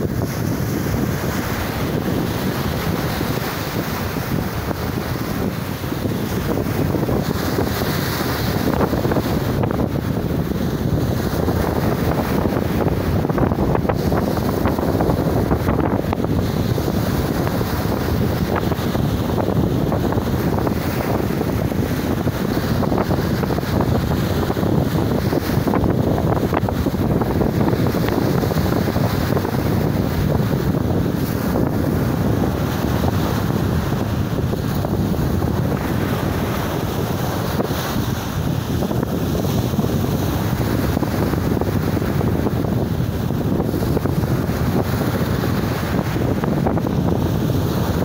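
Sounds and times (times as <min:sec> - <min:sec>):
sea surf breaking on beach: 0:00.0 - 0:48.0
wind buffeting microphone: 0:00.0 - 0:48.0.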